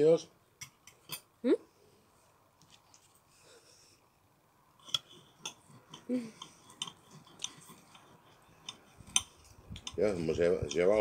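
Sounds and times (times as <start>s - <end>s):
chewing: 5.6s - 9.9s.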